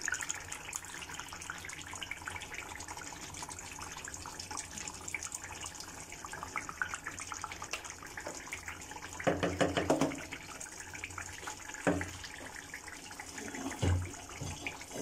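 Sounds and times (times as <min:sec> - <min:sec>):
curry bubbling in pot: 0:00.0 - 0:15.0
wooden spoon knocking pot: 0:09.2 - 0:10.3.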